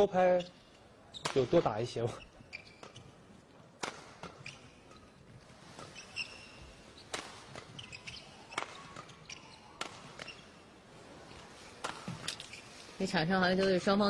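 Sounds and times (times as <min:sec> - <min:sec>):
shoes squeaking on court: 0:00.0 - 0:14.0
rackets hitting shuttlecock: 0:01.2 - 0:01.7, 0:02.6 - 0:10.6, 0:11.4 - 0:12.7.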